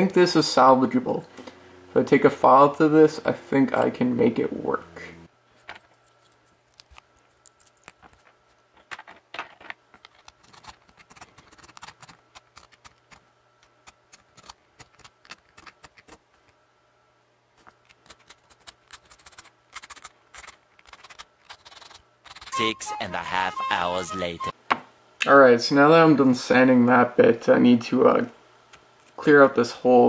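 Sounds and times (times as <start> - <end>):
plastic clicks and scratches: 5.6 - 16.6, 17.6 - 22.5.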